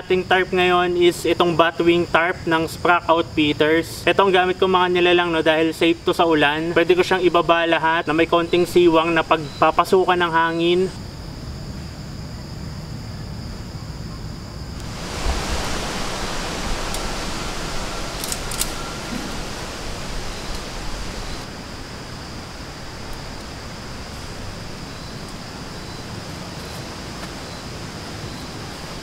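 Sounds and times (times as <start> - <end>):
high insect drone: 0.0 - 29.0
wind through trees: 0.0 - 29.0.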